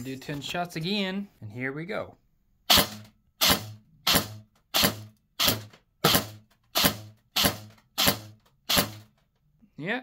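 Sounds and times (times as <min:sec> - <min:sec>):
airsoft rifle shots: 0:02.7 - 0:09.1.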